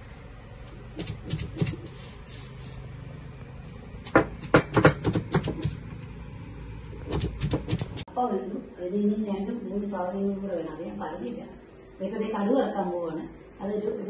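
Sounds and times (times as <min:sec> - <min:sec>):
stone roller knocking on stone: 0:04.1 - 0:05.8.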